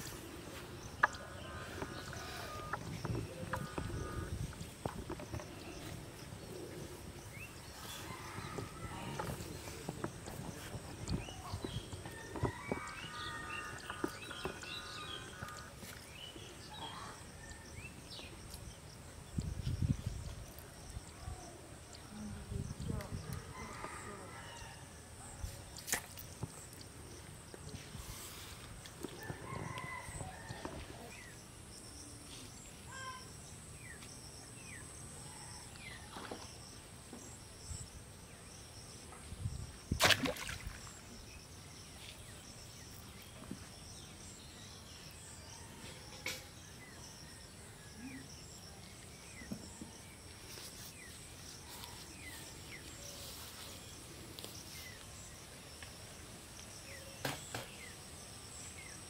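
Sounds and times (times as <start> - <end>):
insect drone: 26.4 - 59.0
sharp knocks or splashes: 39.9 - 41.0.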